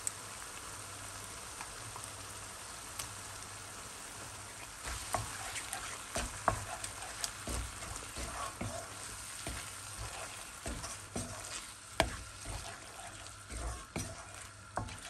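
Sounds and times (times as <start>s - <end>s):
food sizzling in a pan: 0.0s - 15.0s
spatula scraping a pan: 4.5s - 15.0s.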